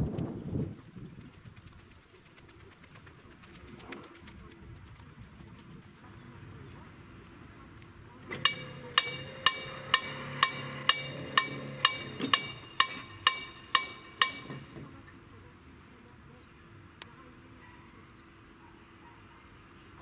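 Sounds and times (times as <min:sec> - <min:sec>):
level-crossing warning bell ringing: 0:08.3 - 0:14.8.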